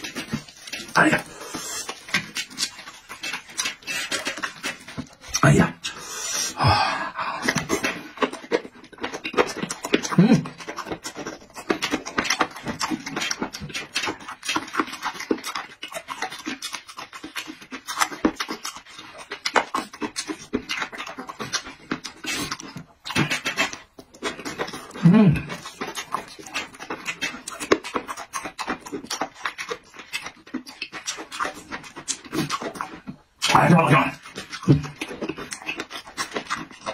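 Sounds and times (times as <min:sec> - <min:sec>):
wet chewing and lip-smacking: 0:00.0 - 0:36.9
heavy breathing: 0:05.9 - 0:07.8
person humming low: 0:06.6 - 0:07.5, 0:25.0 - 0:25.5.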